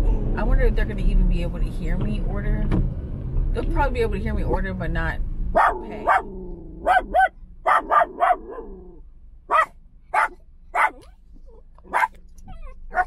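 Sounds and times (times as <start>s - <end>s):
small dog barking: 5.5s - 8.8s, 9.5s - 13.0s.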